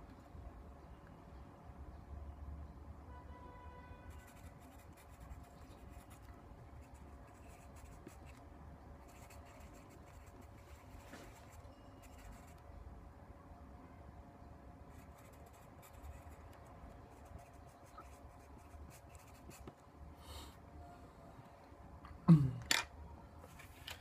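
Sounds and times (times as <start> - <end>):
faint steady hum: 0.0 - 24.0
pen scratching on paper: 4.2 - 8.4, 9.0 - 12.6, 14.9 - 19.7.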